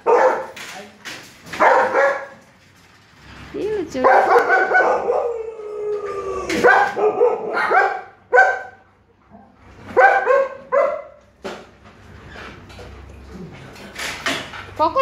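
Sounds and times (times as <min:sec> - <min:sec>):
dogs barking and yipping: 0:00.0 - 0:00.6, 0:01.5 - 0:02.6, 0:04.0 - 0:11.3.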